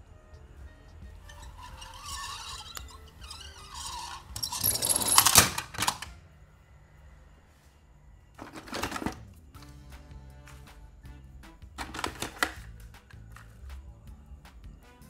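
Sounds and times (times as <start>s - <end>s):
toy cars clattering: 1.2s - 6.2s, 8.4s - 9.3s, 11.8s - 12.7s.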